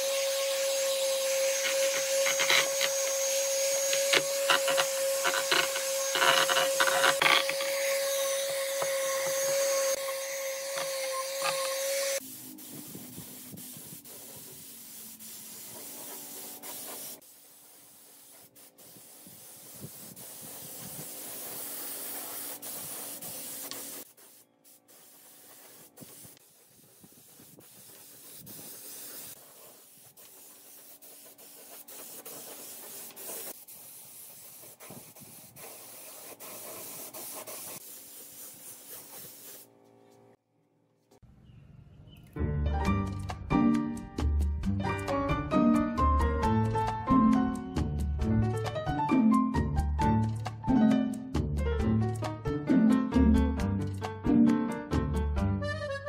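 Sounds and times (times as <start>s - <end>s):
spray gun hissing: 0.0s - 6.7s, 7.6s - 39.7s
electric palm sander: 0.0s - 13.0s.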